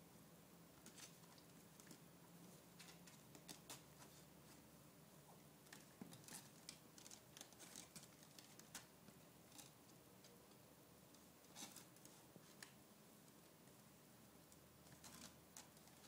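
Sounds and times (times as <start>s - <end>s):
kittens scratching on fabric: 0.8s - 4.7s, 5.7s - 9.8s, 11.4s - 12.8s, 14.8s - 16.0s.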